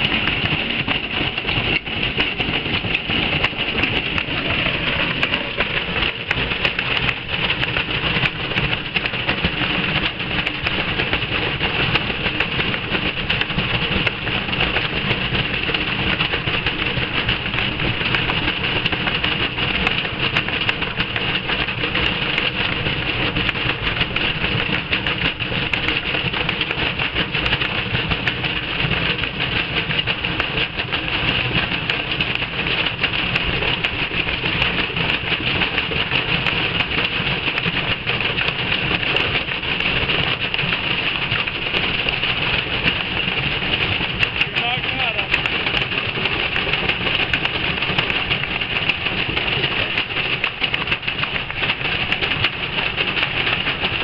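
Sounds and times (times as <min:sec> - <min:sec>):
low rumble: 0:00.0 - 0:09.7
drum banging and rattling: 0:00.0 - 0:54.0
washing machine motor whine: 0:00.0 - 0:54.0.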